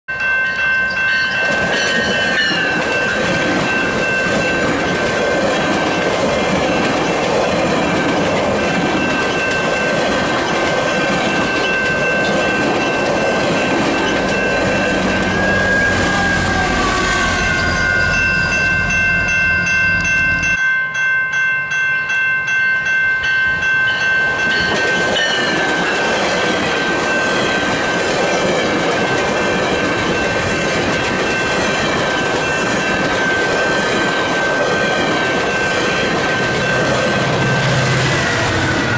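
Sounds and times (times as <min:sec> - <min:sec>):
high ringing tone: 0:00.1 - 0:07.1, 0:10.9 - 0:28.1.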